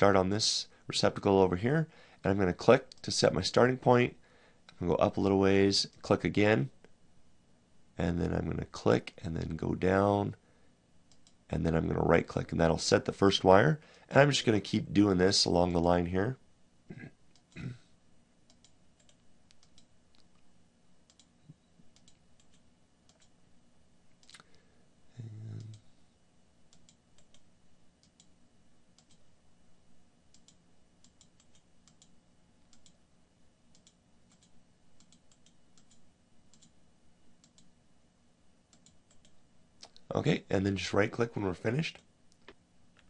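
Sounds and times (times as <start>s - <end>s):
computer mouse clicks: 11.1s - 11.4s, 18.5s - 20.5s, 21.1s - 23.4s, 26.7s - 28.4s, 29.0s - 29.2s, 30.3s - 33.0s, 33.7s - 36.8s, 37.4s - 37.7s, 38.7s - 40.1s.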